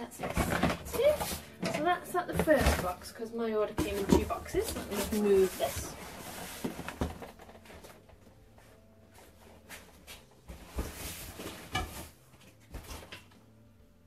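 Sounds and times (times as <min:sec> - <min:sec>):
cardboard boxes being handled: 0:03.7 - 0:12.1.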